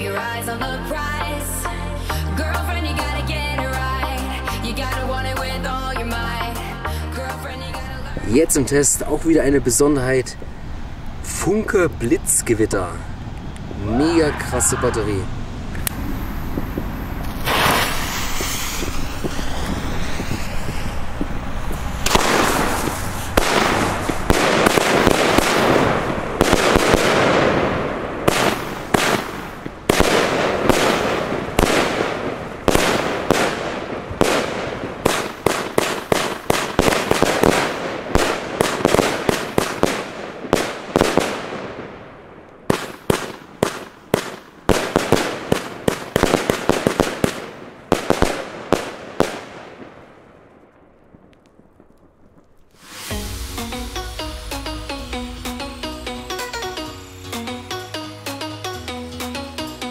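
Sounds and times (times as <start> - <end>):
firework shots bursting: 15.7 - 57.6.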